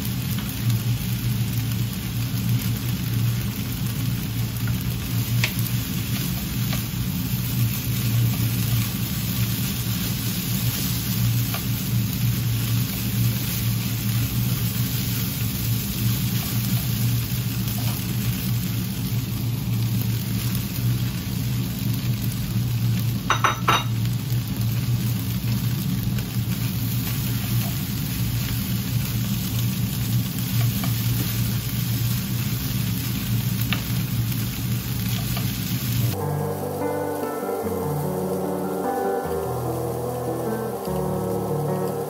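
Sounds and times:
noodles sizzling in a pan: 0.0 - 42.0
low hum: 36.0 - 42.0
music: 36.1 - 42.0.

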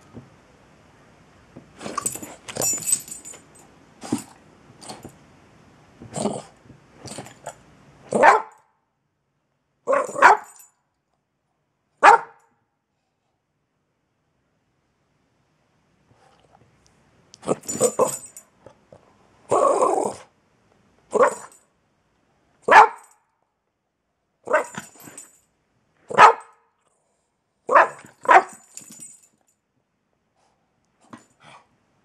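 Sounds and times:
dog barking: 8.1 - 8.6, 9.9 - 10.6, 12.0 - 12.5, 21.1 - 21.5, 22.7 - 23.1, 24.5 - 24.8, 26.1 - 26.6, 27.7 - 28.6.

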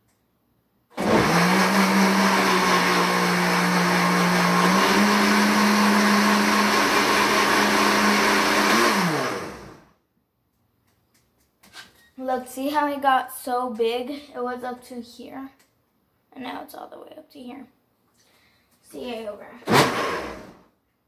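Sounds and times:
blender motor running: 1.0 - 9.9, 19.7 - 20.6.

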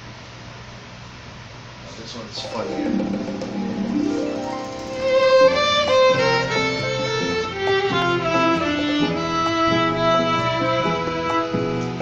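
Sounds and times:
violin melody: 2.4 - 12.0.

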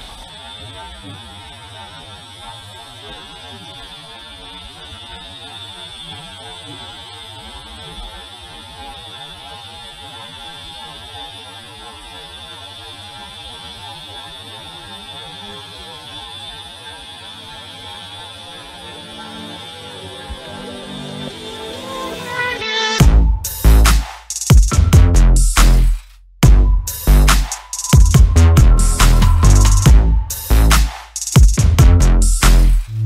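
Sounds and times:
low rumble: 26.4 - 27.3, 28.0 - 30.8.

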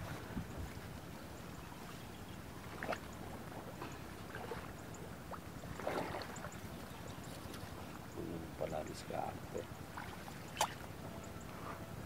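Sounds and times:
water sloshing and splashing: 2.5 - 8.1, 9.6 - 11.8.

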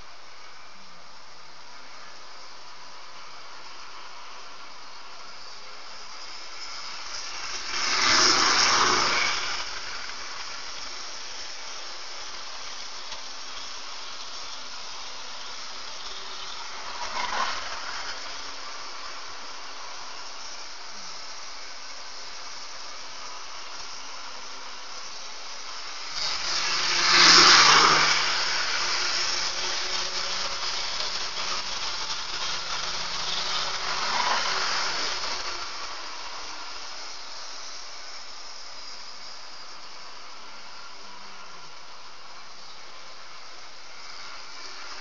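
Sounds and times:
model train running past: 0.0 - 45.0
steady hiss: 0.0 - 45.0.

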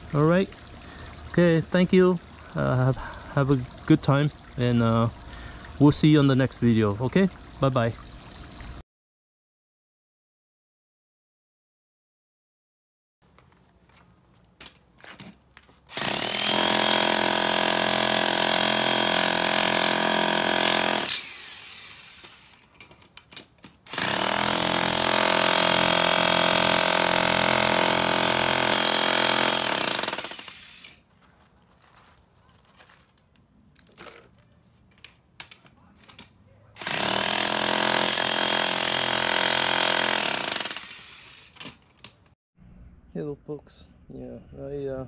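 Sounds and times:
demolition hammer chiselling concrete: 15.9 - 22.6, 23.9 - 30.6, 36.8 - 41.1.

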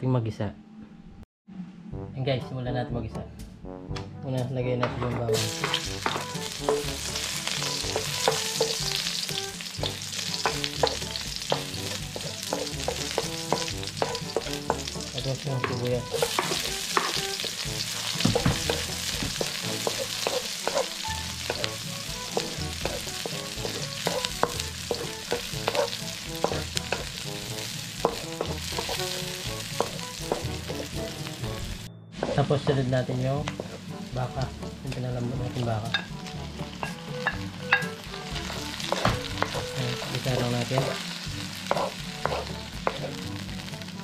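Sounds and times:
garlic and onion sizzling in oil: 5.3 - 44.0
wooden spatula scraping a wok: 10.1 - 31.2, 38.4 - 43.2.

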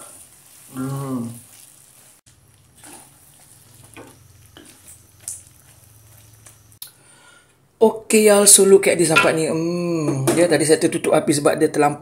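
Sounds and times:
spatula scraping a wok: 0.0 - 6.8
syrup bubbling and sizzling: 0.0 - 6.8.

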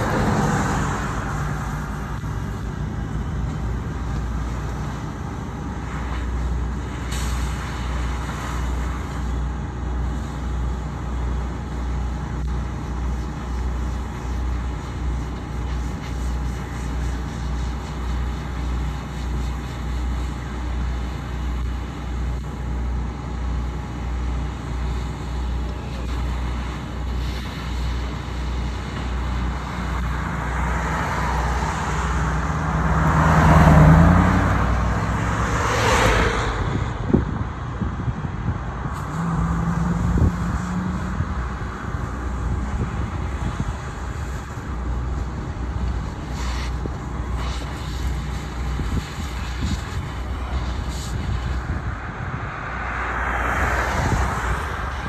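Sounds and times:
vehicle passing by: 0.0 - 4.5, 29.2 - 45.6, 47.4 - 55.0
engine droning: 0.0 - 55.0.

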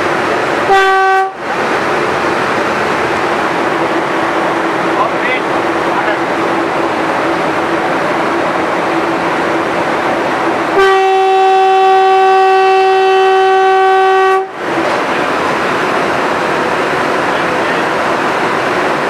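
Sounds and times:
train running at high speed: 0.0 - 19.0
train horn long steady note: 0.7 - 1.4, 10.7 - 14.6.

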